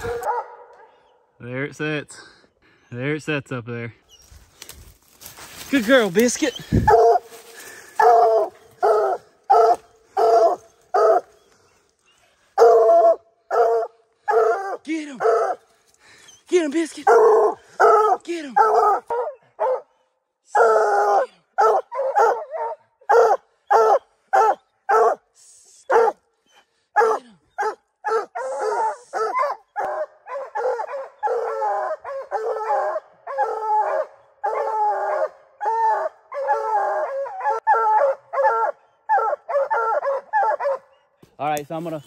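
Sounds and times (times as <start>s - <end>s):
hounds barking: 0.0s - 1.2s, 6.4s - 11.8s, 12.4s - 15.8s, 17.0s - 25.3s, 25.9s - 41.2s.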